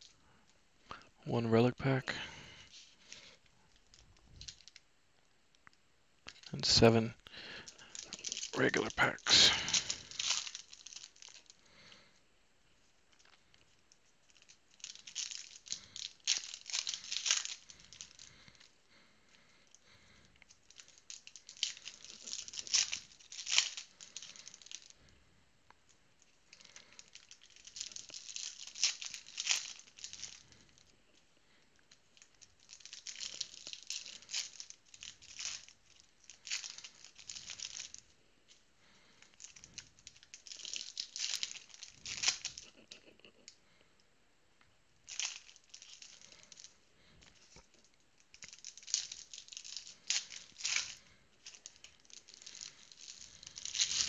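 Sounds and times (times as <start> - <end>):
wrappers tearing and crinkling: 7.3 - 12.1, 13.1 - 25.2, 26.2 - 43.5, 45.0 - 54.0.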